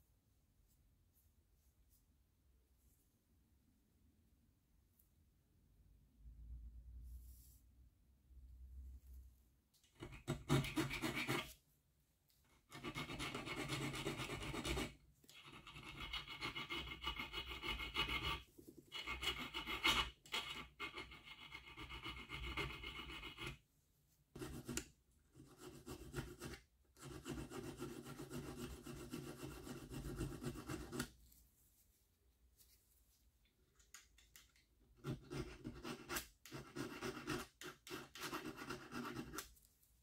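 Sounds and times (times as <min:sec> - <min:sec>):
file rasping on steel: 0:12.8 - 0:18.4, 0:19.0 - 0:23.6.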